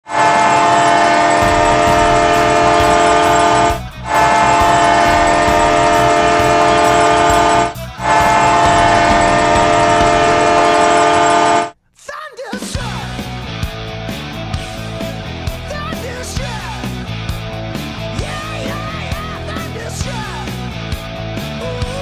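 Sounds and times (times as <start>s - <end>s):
hockey goal horn blasts: 0.0s - 11.8s.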